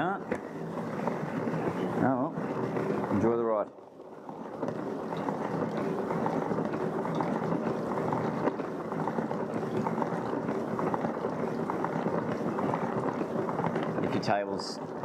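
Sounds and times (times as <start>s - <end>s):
spin dryer whirring: 0.0s - 15.0s.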